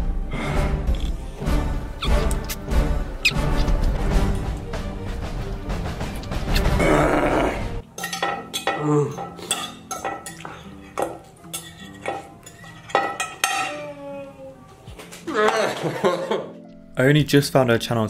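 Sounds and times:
fork scraping a plate: 0:10.4 - 0:13.8.

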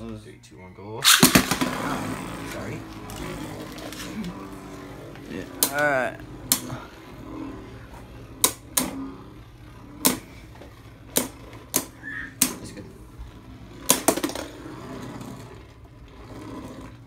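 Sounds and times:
spinning tops clacking together: 0:13.8 - 0:14.5.

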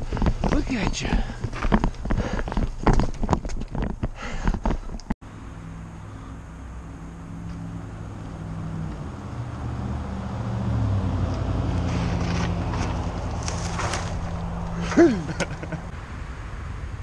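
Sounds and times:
engine drone: 0:05.2 - 0:17.0
bike tyres hissing over rock: 0:11.8 - 0:15.6.

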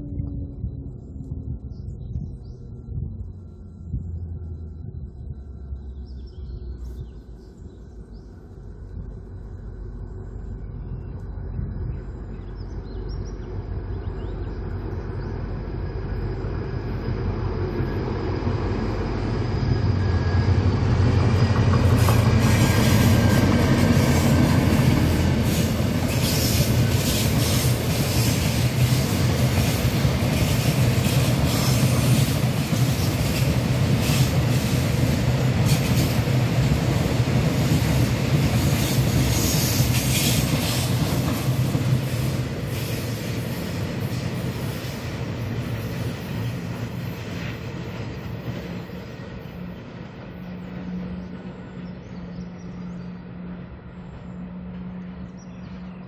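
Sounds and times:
diesel locomotive engine drone: 0:00.0 - 0:56.0
train wagons rumbling past: 0:06.8 - 0:56.0
train wheel clatter: 0:19.3 - 0:51.2.

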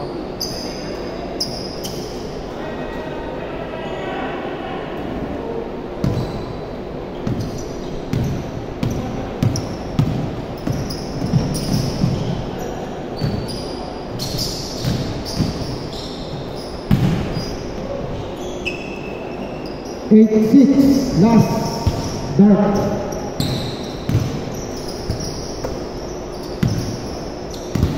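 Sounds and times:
shoe squeaks: 0:00.4 - 0:02.2, 0:06.0 - 0:06.7, 0:07.3 - 0:20.2, 0:20.8 - 0:27.9
basketball bouncing on wooden court: 0:06.0 - 0:06.4, 0:07.2 - 0:12.4, 0:13.2 - 0:17.5, 0:20.8 - 0:27.9.

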